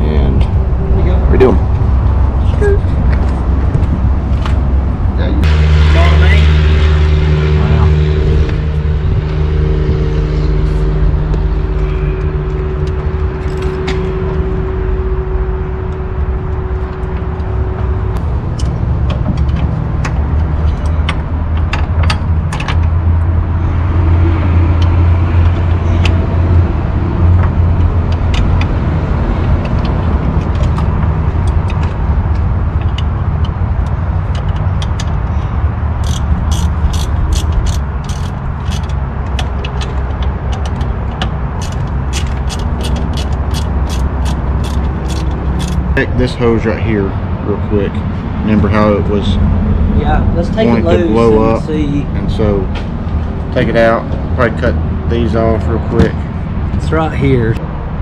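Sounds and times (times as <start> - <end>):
steady tones: 0.0 - 57.6
loud low machine drone: 0.0 - 58.0
hand tools clicking on metal: 36.0 - 45.9.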